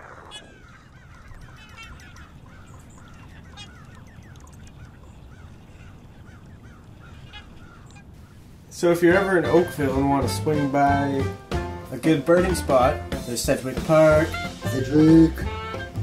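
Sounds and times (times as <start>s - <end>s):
waterbirds honking: 0.0s - 16.0s.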